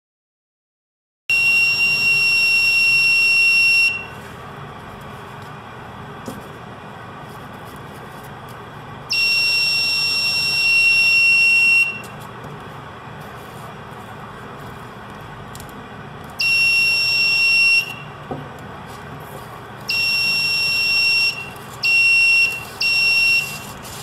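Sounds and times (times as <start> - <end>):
high-pitched alarm buzzer: 9.1 - 12.1, 16.4 - 18.1, 19.9 - 23.8.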